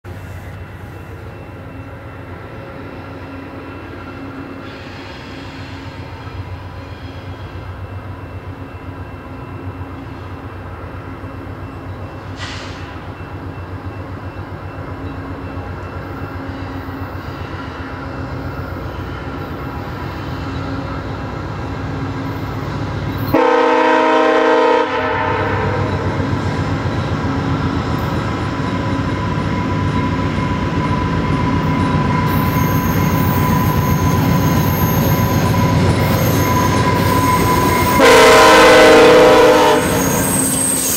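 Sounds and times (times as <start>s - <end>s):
diesel locomotive engine rumble: 0.0s - 40.9s
train horn blast: 23.3s - 26.0s, 36.8s - 40.5s
wheel squeal: 29.9s - 38.0s, 39.8s - 40.9s.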